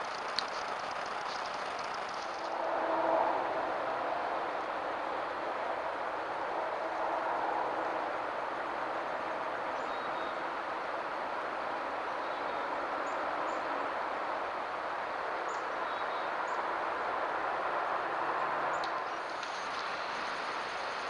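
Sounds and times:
steady rushing microphone noise: 0:00.0 - 0:09.8.

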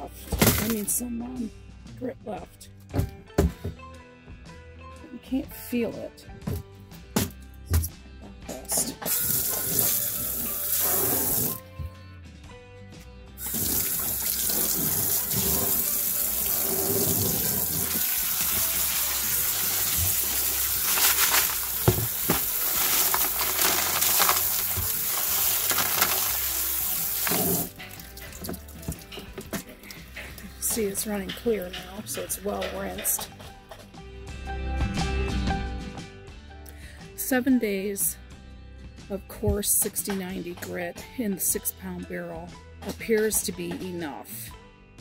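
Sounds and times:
hose nozzle spraying water on stones: 0:09.1 - 0:11.6, 0:13.4 - 0:28.1.

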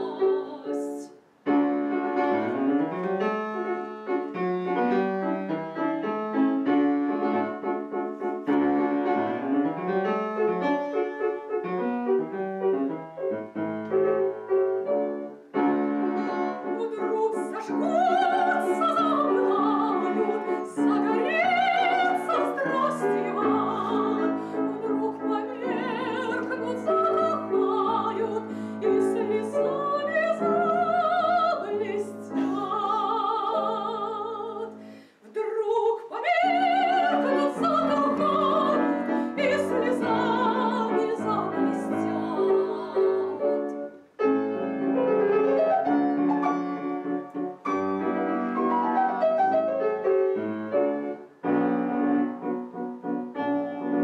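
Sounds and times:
woman singing classical: 0:00.0 - 0:01.3, 0:15.2 - 0:44.0
grand piano: 0:00.0 - 0:54.0.

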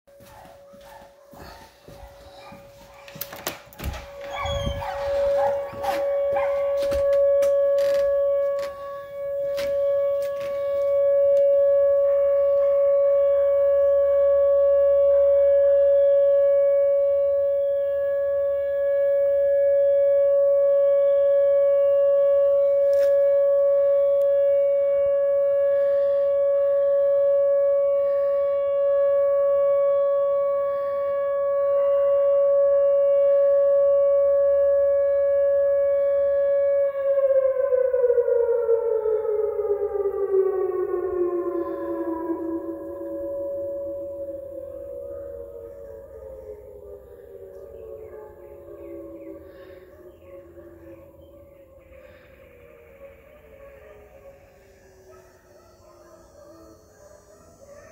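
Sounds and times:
warning siren steady tone: 0:00.1 - 0:57.9
door opening clicks and knocks: 0:03.3 - 0:04.5.

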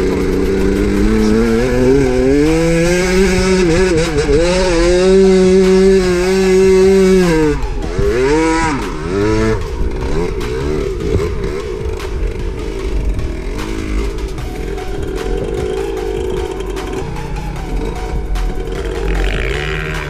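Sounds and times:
two-stroke motorcycle engine revving: 0:00.0 - 0:20.0.

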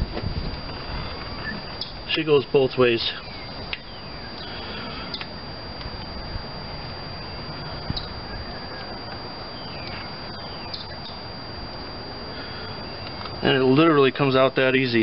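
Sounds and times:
outdoor background hiss: 0:00.0 - 0:15.0
bird chirps: 0:01.4 - 0:02.0, 0:03.1 - 0:05.4, 0:07.2 - 0:11.3
faint clicks: 0:05.1 - 0:06.0.

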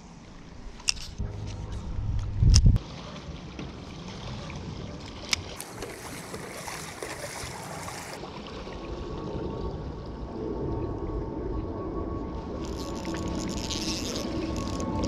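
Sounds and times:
paddle splashing in water: 0:02.8 - 0:09.0.

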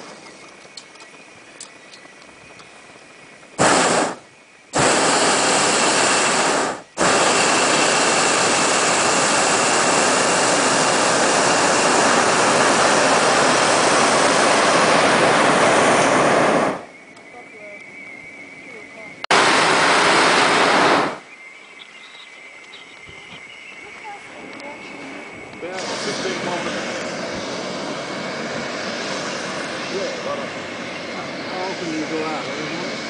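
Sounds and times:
propane burner firing: 0:03.5 - 0:17.0, 0:19.3 - 0:21.3, 0:25.2 - 0:33.0.

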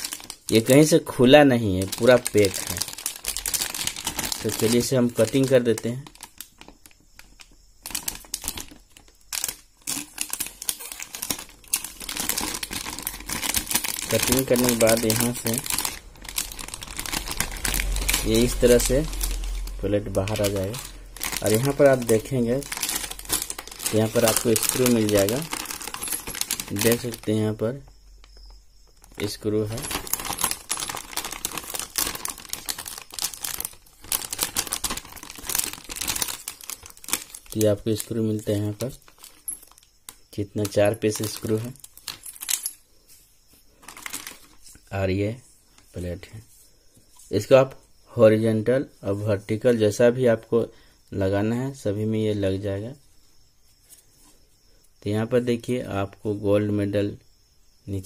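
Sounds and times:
plastic wrapping crinkling: 0:00.0 - 0:42.8, 0:43.5 - 0:44.9.

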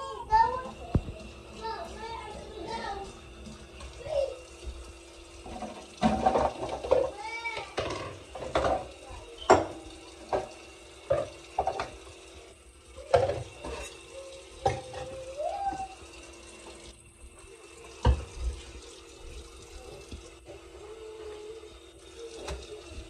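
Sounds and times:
tap running: 0:00.0 - 0:23.0
dishes clinking in a steel sink: 0:05.4 - 0:12.2, 0:13.0 - 0:15.9, 0:18.0 - 0:18.8.

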